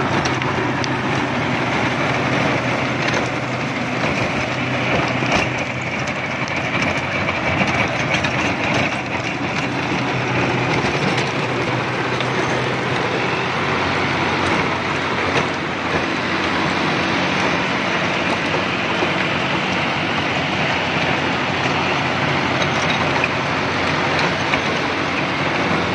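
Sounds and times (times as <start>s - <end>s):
rotavator blades churning soil: 0.0s - 25.9s
tractor diesel engine rumble: 0.0s - 25.9s.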